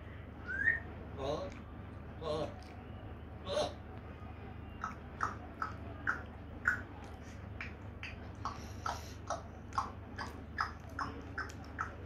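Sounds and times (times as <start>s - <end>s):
parrot clicking chirps: 4.8s - 6.9s, 7.6s - 12.0s.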